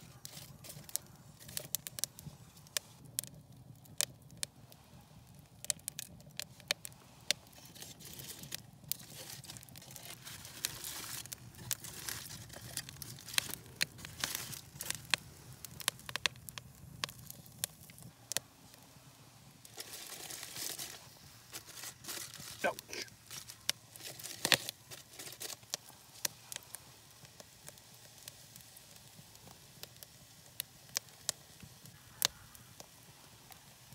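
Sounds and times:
rustling: 0.0s - 3.0s, 7.3s - 16.4s, 19.6s - 26.7s
campfire crackling and popping: 0.0s - 33.9s.

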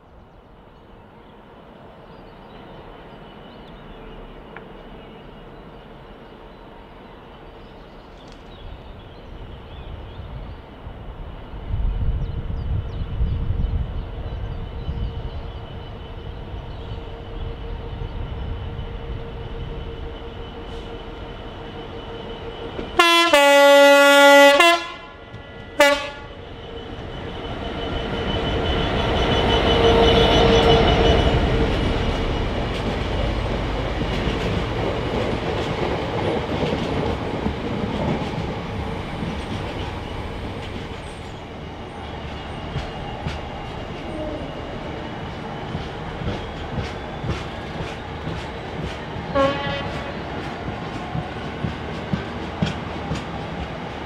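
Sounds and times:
diesel locomotive engine rumble: 0.0s - 54.0s
locomotive horn blasts: 23.0s - 26.4s, 49.3s - 50.2s.

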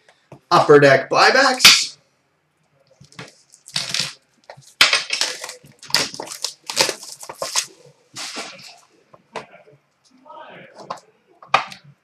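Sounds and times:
card pack wrapper crinkling and tearing: 3.1s - 8.7s.

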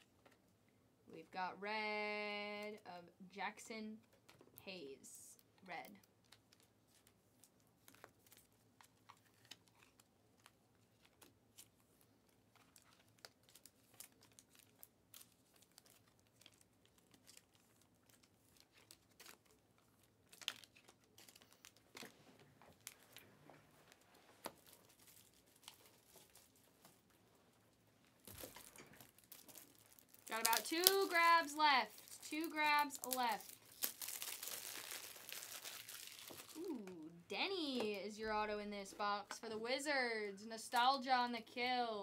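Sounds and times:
trading cards rustling: 6.2s - 27.2s, 28.1s - 38.2s.

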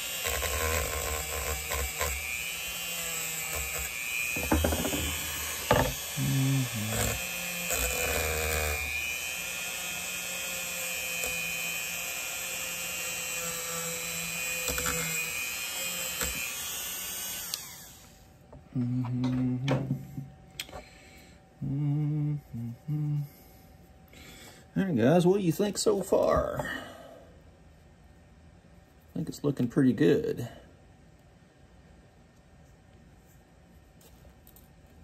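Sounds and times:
rotary tool wire wheel whining: 0.0s - 18.2s
knocks: 4.3s - 6.0s.

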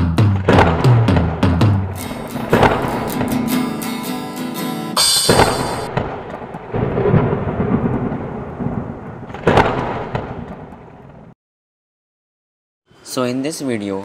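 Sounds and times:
thunderclap: 0.1s - 4.1s, 5.0s - 11.4s
thunder rumble: 0.2s - 4.0s, 5.3s - 11.4s
bright high shimmer: 5.0s - 5.9s.

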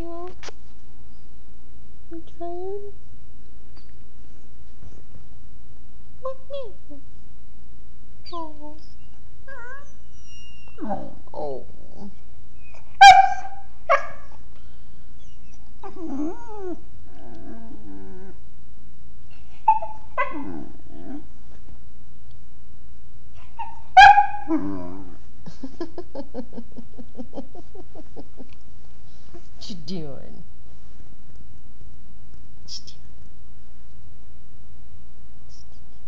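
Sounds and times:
puppy whining: 8.2s - 14.3s, 15.2s - 18.4s, 19.3s - 21.3s
puppy yipping: 12.7s - 14.3s, 19.7s - 20.4s, 23.5s - 24.5s.

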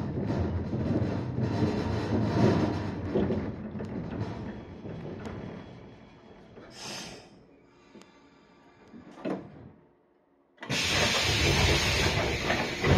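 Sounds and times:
train running rumble: 0.0s - 6.9s, 10.6s - 12.9s
train doors opening rush of air: 6.6s - 7.4s, 10.6s - 12.9s
short air hiss: 6.8s - 7.3s.

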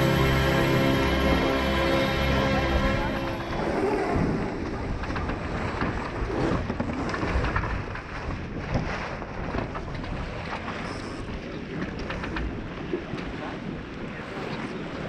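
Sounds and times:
water rushing along a hull: 0.0s - 15.0s
wind buffeting the microphone: 3.4s - 15.0s.

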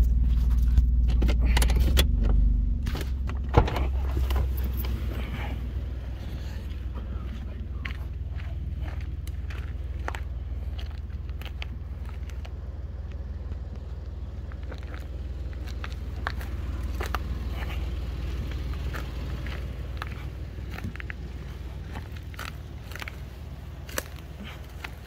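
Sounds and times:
steady low rumble: 0.0s - 25.0s
footsteps on dry forest floor: 6.2s - 25.0s.

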